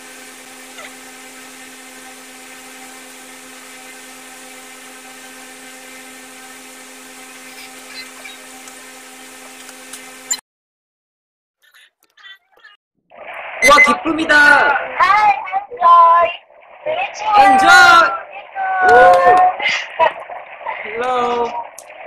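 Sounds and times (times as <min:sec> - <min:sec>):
small motor whirring: 0:00.0 - 0:10.4.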